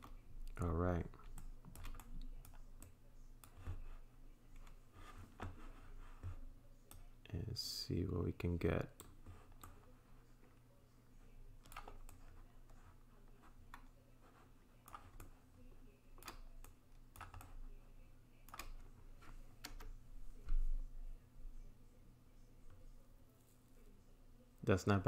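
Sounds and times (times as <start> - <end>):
mouse and keyboard clicks: 16.2 - 17.6.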